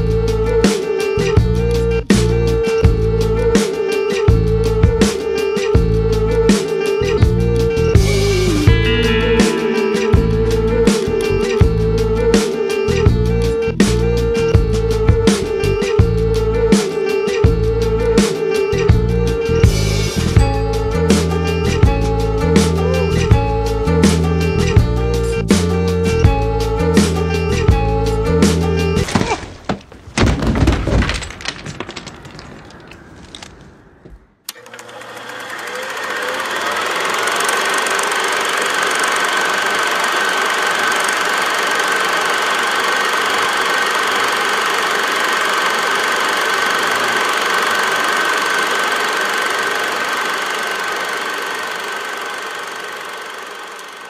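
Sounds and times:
film fight bangs and knocks: 0:29.0 - 0:32.8
film projector whirring: 0:34.4 - 0:54.0.

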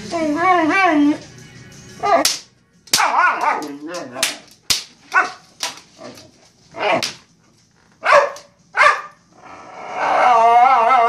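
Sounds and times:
dog whining: 0:00.0 - 0:01.3, 0:09.5 - 0:11.0
dog barking: 0:03.0 - 0:03.8, 0:05.1 - 0:05.4, 0:08.0 - 0:09.2.

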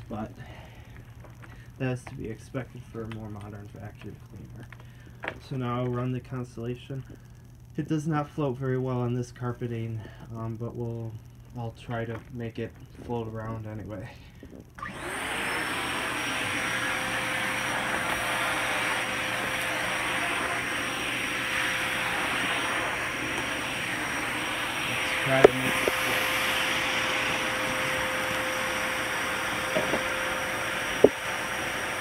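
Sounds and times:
vacuum cleaner running: 0:14.8 - 0:32.0.

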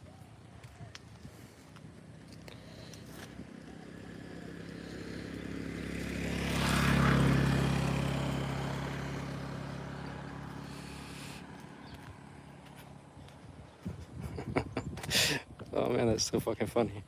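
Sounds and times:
vehicle driving past: 0:01.3 - 0:14.2.

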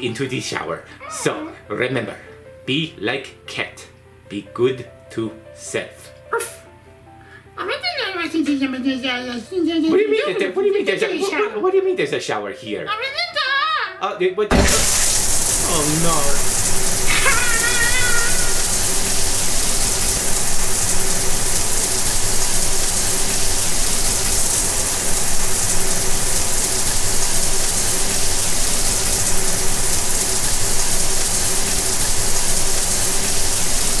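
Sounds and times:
shower spray running: 0:14.5 - 0:34.0.

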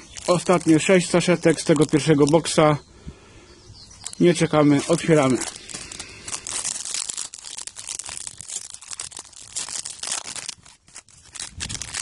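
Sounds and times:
foil wrapper tearing and crinkling: 0:00.0 - 0:02.5, 0:04.0 - 0:12.0
cards pulled out of pack: 0:00.0 - 0:02.6, 0:04.0 - 0:12.0.

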